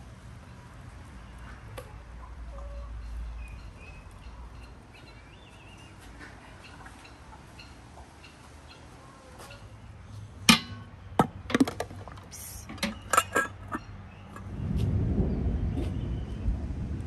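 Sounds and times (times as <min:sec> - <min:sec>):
low rumbling noise: 0:10.6 - 0:17.0
glass jars clinking: 0:11.6 - 0:13.9.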